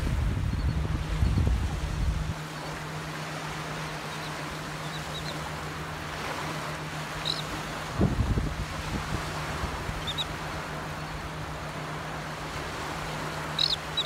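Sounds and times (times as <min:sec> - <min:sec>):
wind buffeting microphone: 0:00.0 - 0:02.5, 0:07.3 - 0:11.3
surf washing on beach: 0:00.0 - 0:14.0
terns calling: 0:03.6 - 0:05.9, 0:07.0 - 0:07.9, 0:09.9 - 0:11.4, 0:13.3 - 0:14.0.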